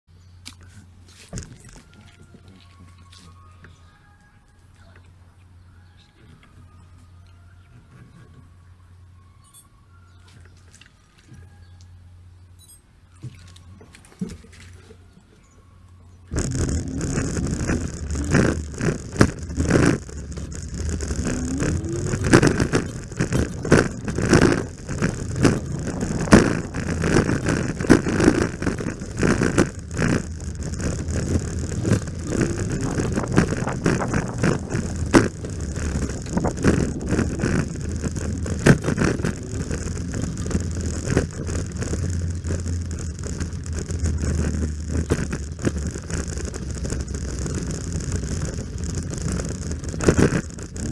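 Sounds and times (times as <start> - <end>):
wind rumble on microphone: 16.3 - 50.9.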